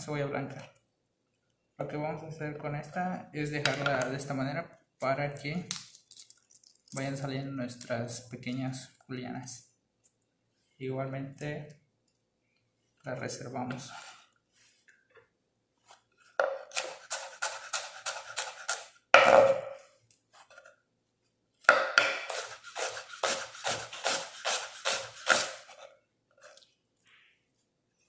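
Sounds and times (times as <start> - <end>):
knife scraping board: 15.9 - 19.0, 22.2 - 26.6
knife slicing onion on wooden board: 16.4 - 19.6, 21.6 - 25.8.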